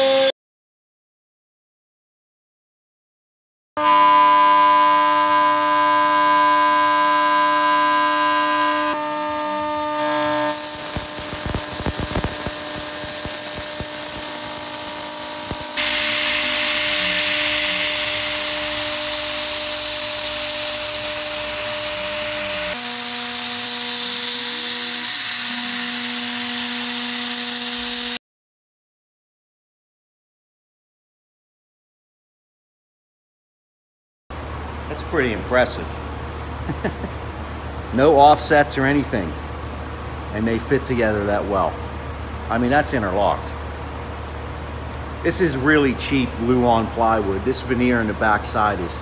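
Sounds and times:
cnc router spindle whining: 3.8s - 28.2s.

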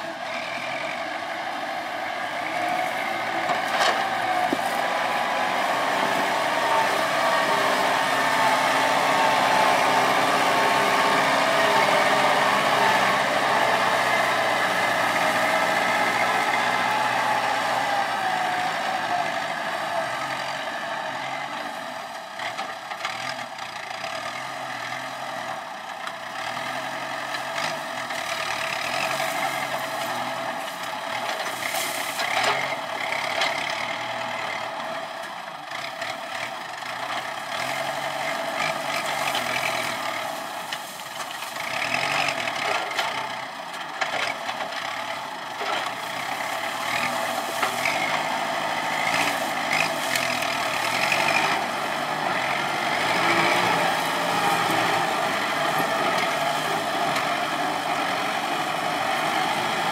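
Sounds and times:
diesel tractor engine running: 0.0s - 59.9s
claw scraping cane stalks: 2.4s - 6.3s, 27.4s - 33.8s, 37.1s - 59.0s.

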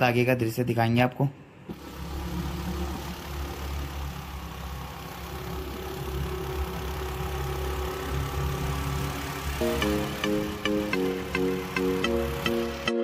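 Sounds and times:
vehicle engine humming: 1.5s - 13.0s.

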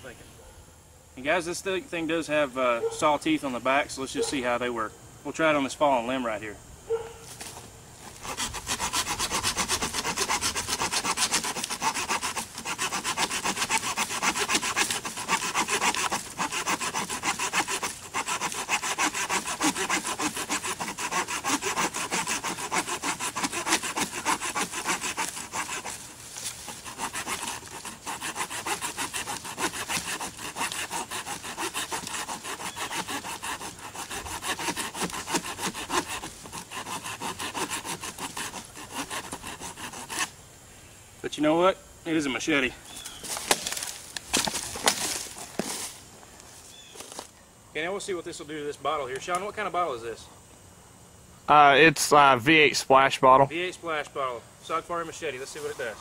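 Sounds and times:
saw rasping through wood: 8.0s - 40.3s.

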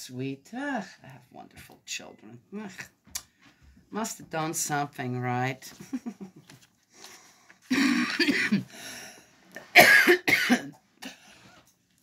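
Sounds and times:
woman coughing: 7.7s - 8.7s, 9.7s - 11.2s.

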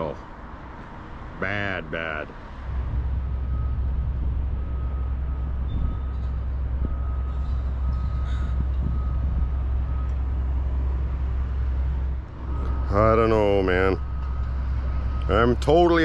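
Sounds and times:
vehicle interior rumble: 0.8s - 16.0s
faint high tone dashes: 12.4s - 14.0s.

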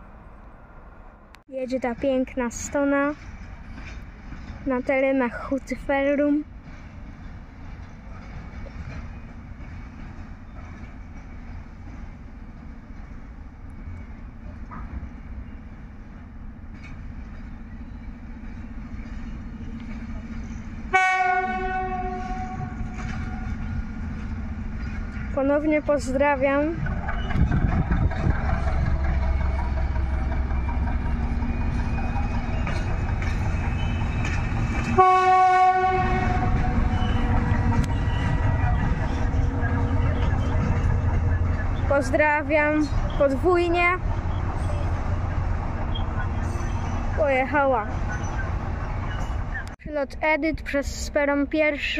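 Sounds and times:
diesel locomotive engine rumble: 0.0s - 51.9s
locomotive horn: 20.9s - 23.6s, 34.8s - 37.4s.

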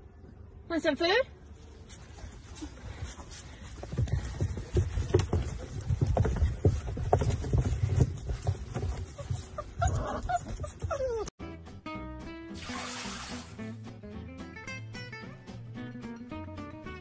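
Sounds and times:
puppy paws scuffling: 1.5s - 11.3s
puppies squeaking: 6.2s - 11.3s.

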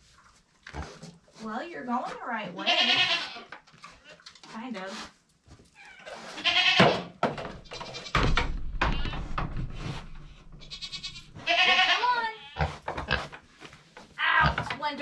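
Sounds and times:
goats bleating: 2.6s - 3.5s, 6.3s - 7.0s, 10.6s - 12.6s.

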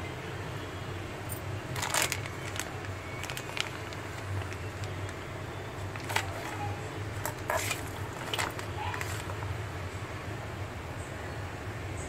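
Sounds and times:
plastic packet crinkling: 1.3s - 9.6s.

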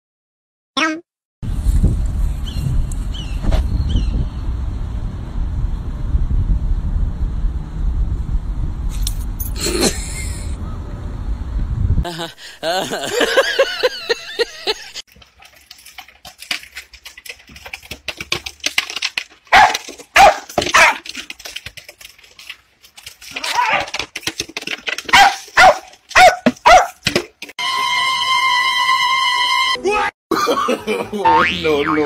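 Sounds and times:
small dog barking: 19.5s - 21.0s, 25.1s - 27.0s.

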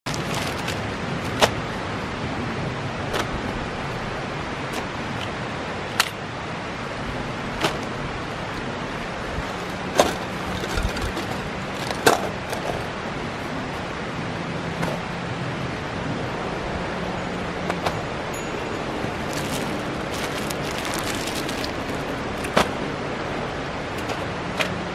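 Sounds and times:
plastic bags crinkling: 0.0s - 1.4s, 9.4s - 12.8s, 18.9s - 22.6s.

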